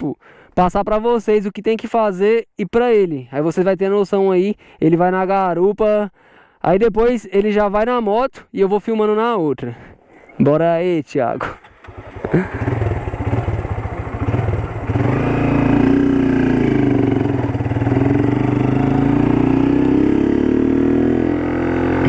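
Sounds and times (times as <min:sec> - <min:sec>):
motorcycle engine revving: 0:11.6 - 0:22.0.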